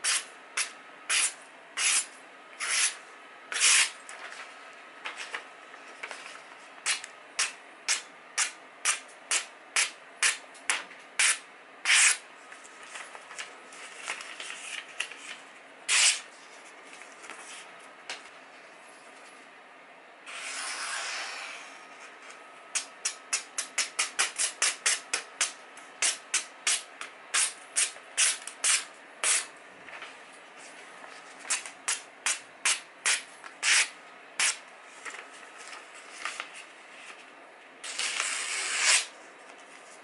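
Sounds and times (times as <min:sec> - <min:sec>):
knife slicing paper: 0:00.0 - 0:04.0, 0:11.2 - 0:12.2, 0:14.0 - 0:16.3, 0:37.8 - 0:39.2
paper rustling: 0:04.0 - 0:06.7, 0:12.6 - 0:19.4, 0:35.0 - 0:37.3.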